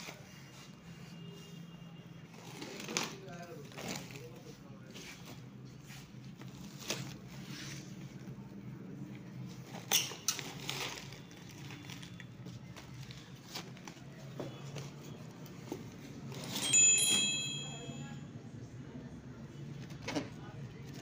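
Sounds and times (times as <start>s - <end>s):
plastic wrap crinkling: 9.3s - 14.3s.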